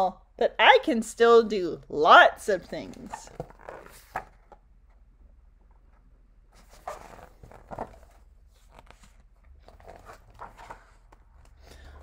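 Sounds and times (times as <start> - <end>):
paper book rustling: 2.9 - 4.6, 6.5 - 11.6.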